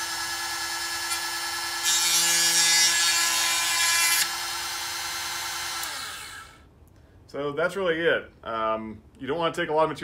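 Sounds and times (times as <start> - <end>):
grinder motor whining: 0.0 - 6.6.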